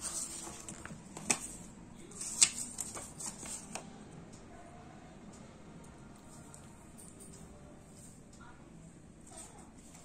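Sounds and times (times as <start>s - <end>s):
paper rustling and crackling: 0.0s - 3.8s.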